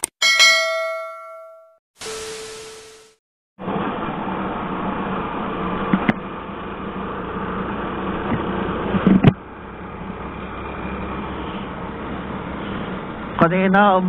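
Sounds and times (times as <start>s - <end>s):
road and wind noise: 3.6s - 14.0s.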